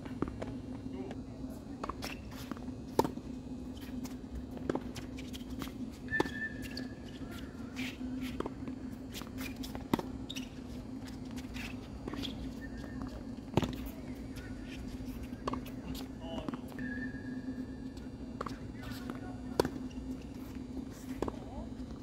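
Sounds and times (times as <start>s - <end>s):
steady low hum: 0.0s - 22.0s
shoe squeak: 5.1s - 8.0s, 10.2s - 10.7s, 11.5s - 15.4s
tennis ball bounces: 18.4s - 21.5s.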